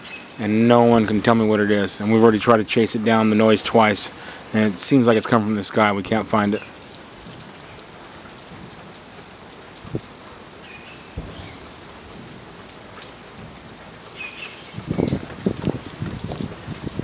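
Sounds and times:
steady rain: 0.0s - 17.0s
dull thumps: 11.2s - 11.6s.

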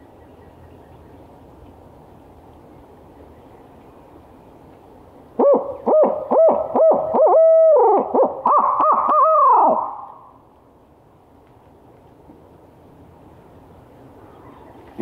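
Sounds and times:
man imitating owl hoots: 5.4s - 10.1s.

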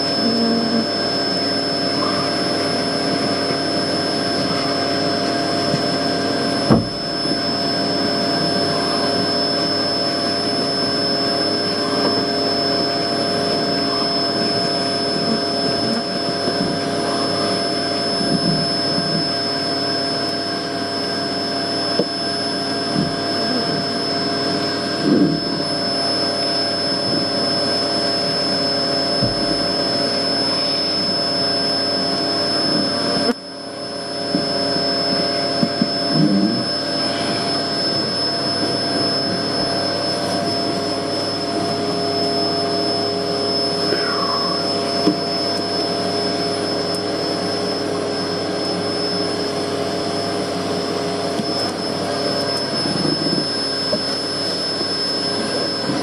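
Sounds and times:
vacuum motor whine: 0.0s - 56.0s.

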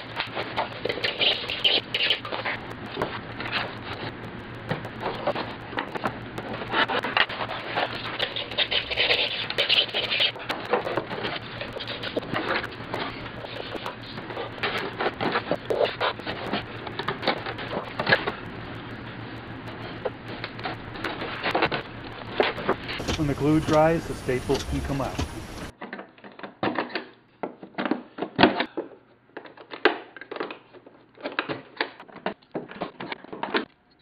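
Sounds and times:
wooden strips scraping together: 5.0s - 16.6s.

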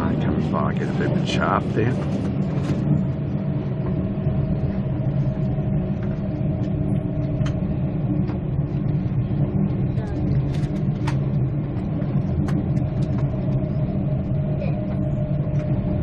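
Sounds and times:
train interior rumble: 0.0s - 16.0s.

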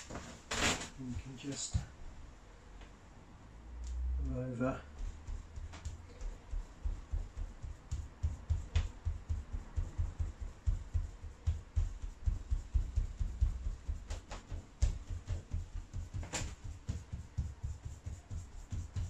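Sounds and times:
damp cloth dabbing thumps: 4.7s - 19.0s.

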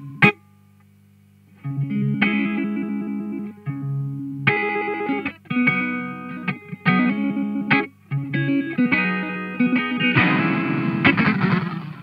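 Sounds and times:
electric guitar chords ringing: 0.0s - 0.8s, 1.5s - 12.0s.

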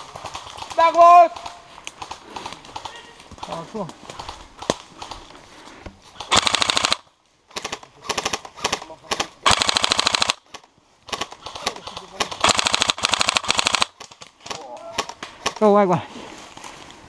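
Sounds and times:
airsoft rifle full-auto bursts: 6.2s - 14.2s.

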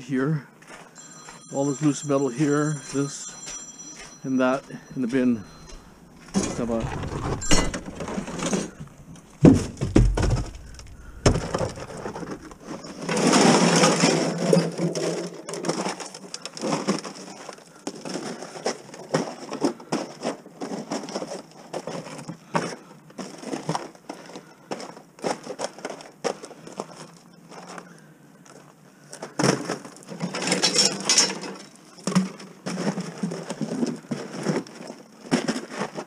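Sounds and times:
small crackles and knocks: 5.7s - 36.0s
thumps on plastic garbage can: 9.4s - 10.6s
foil duct crinkling: 14.7s - 22.3s.

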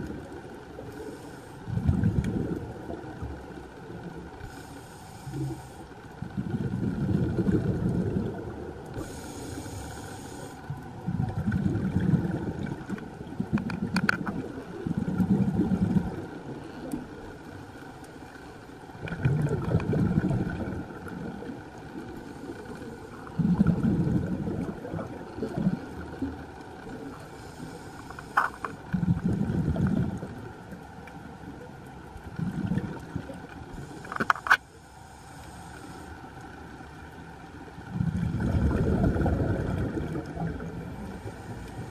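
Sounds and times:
exhaled bubbles rumbling: 0.0s - 4.4s, 5.3s - 9.8s, 10.7s - 17.5s, 18.9s - 27.6s, 28.8s - 34.1s, 37.6s - 41.9s
regulator inhalation hiss: 4.4s - 5.9s, 9.0s - 10.6s, 27.3s - 28.8s, 33.8s - 36.2s.

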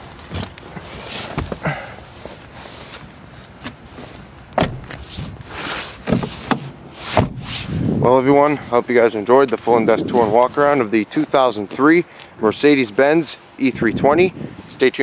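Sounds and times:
car door knocks and clicks: 4.6s - 5.0s, 6.0s - 7.4s
car door thumping shut: 4.6s - 5.1s, 6.0s - 7.5s.

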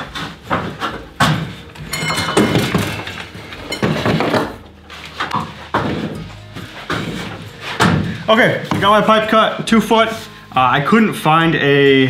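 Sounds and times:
knocks and thumps on ladder: 0.0s - 4.6s, 5.2s - 9.2s
metallic ringing: 1.8s - 4.2s.

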